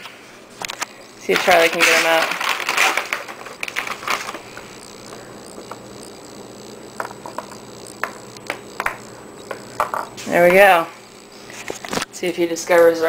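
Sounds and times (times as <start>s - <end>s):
steady low hum: 0.0s - 13.0s
treats clicking into plastic cups: 0.6s - 4.4s, 7.0s - 10.1s.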